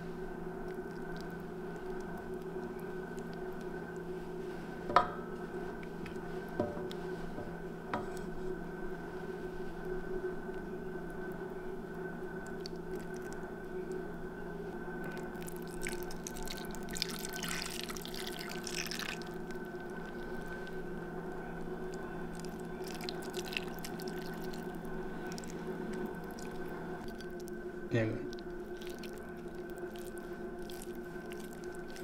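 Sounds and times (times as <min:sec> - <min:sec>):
steady low hum: 0:00.0 - 0:32.0
sauce dripping and splattering: 0:15.2 - 0:19.6, 0:22.3 - 0:27.5, 0:28.3 - 0:32.0.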